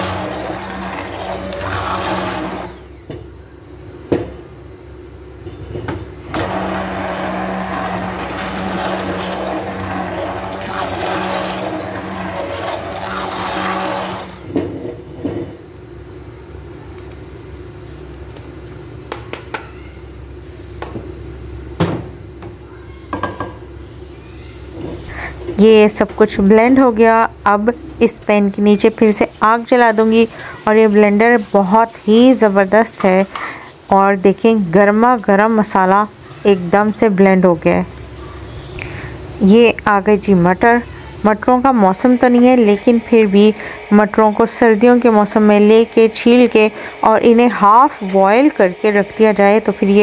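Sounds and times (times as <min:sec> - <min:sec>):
immersion blender humming: 0:00.0 - 0:03.2, 0:06.3 - 0:14.6, 0:41.0 - 0:50.0.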